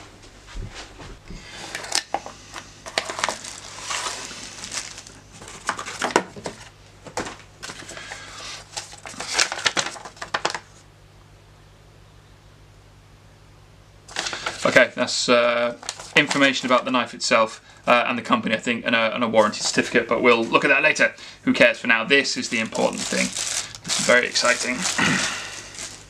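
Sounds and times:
plastic and cardboard crinkling: 0:01.6 - 0:10.8, 0:14.1 - 0:14.9, 0:15.6 - 0:17.0, 0:19.4 - 0:21.1, 0:22.1 - 0:26.0.

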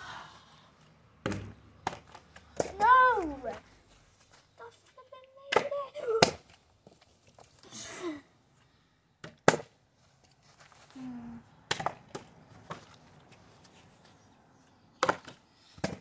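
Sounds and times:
plastic bottle knocking on wall: 0:01.2 - 0:02.0.

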